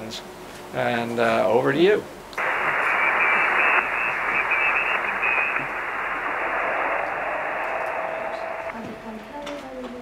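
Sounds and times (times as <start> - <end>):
faint broken whistles: 2.4 - 8.7
radio static hiss: 2.4 - 8.8.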